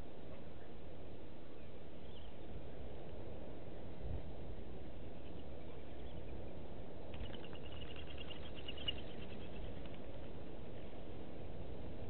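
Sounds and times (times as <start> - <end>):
low outdoor background noise: 0.0 - 12.0
bird chirping: 1.5 - 2.6, 5.0 - 10.2.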